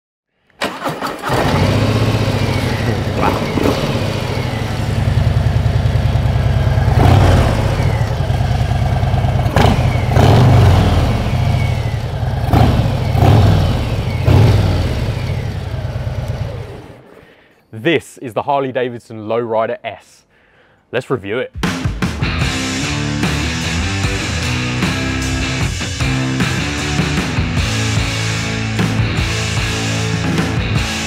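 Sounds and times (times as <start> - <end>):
motorcycle engine idling: 1.2 - 17.2
motorcycle throttle blips: 1.2 - 17.2.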